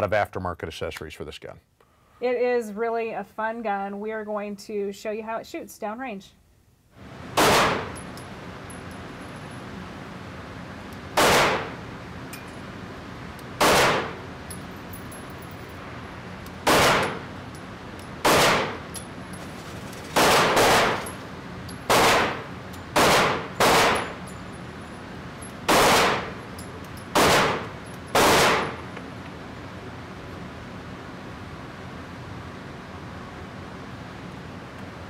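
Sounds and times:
pistol shots echoing: 7.4 - 8.0, 11.2 - 11.8, 13.6 - 14.2, 16.6 - 17.3, 18.2 - 18.9, 20.2 - 21.2, 21.9 - 24.2, 25.7 - 26.4, 27.1 - 28.8.

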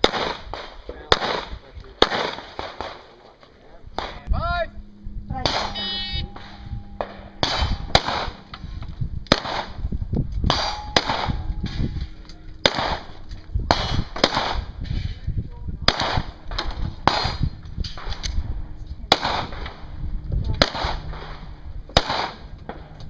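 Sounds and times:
pistol shots: 0.0 - 3.2, 9.3 - 9.8, 12.6 - 14.8, 15.9 - 18.3, 21.9 - 22.5.

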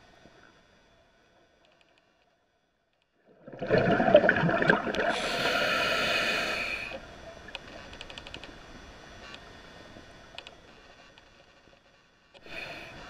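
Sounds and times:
exhaled bubbles rushing underwater: 3.3 - 5.6
regulator inhalation hiss: 5.0 - 7.0, 12.4 - 13.0.

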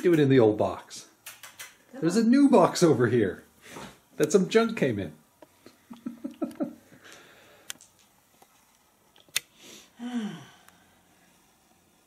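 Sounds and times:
sharp clicks: 1.2 - 1.8.

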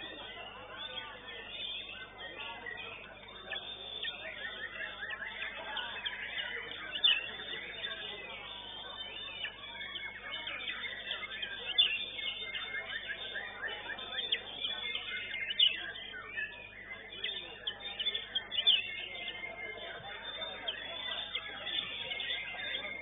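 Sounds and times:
birds singing whistled phrases: 0.0 - 23.0.

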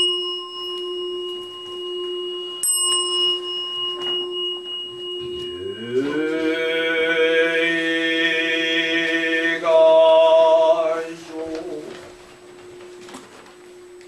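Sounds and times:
bowl bell ringing: 0.0 - 10.3
person chanting a long note: 3.4 - 13.2.

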